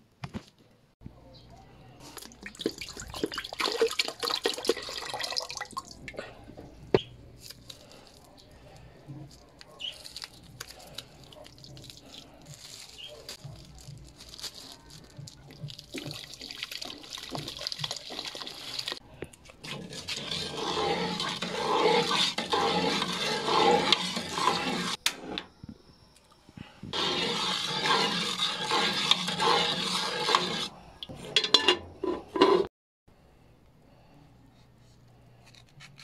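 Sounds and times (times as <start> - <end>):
ladle stirring in metal pot: 15.8 - 19.0, 19.6 - 25.3, 26.9 - 32.7
metal lid clattering: 31.3 - 32.7.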